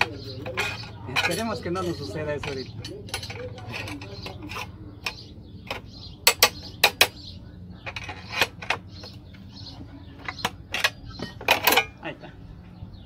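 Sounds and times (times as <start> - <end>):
steel rod clinking against metal: 0.0 - 7.2, 10.2 - 12.0.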